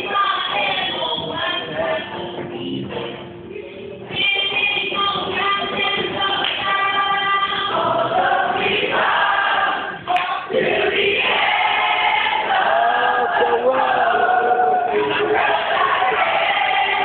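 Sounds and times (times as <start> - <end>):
group of children singing: 4.2 - 17.0.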